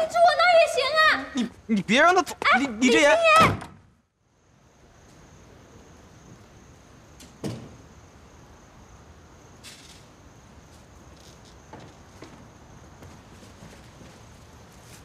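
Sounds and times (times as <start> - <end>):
crickets trilling: 0.0 - 15.0
door shutting with a thud: 3.4 - 3.8, 7.2 - 7.9.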